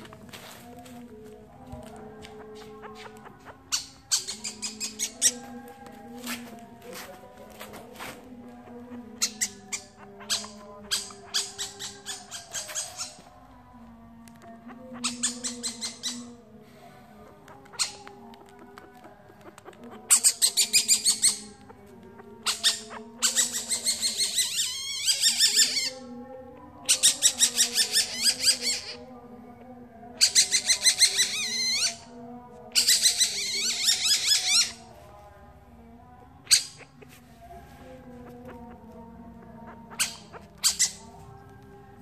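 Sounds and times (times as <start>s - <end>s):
civet cub squeaky chirps: 2.3s - 5.7s, 8.6s - 13.4s, 14.6s - 16.4s, 17.5s - 26.0s, 26.8s - 29.1s, 30.1s - 32.1s, 32.7s - 34.8s, 38.1s - 41.2s.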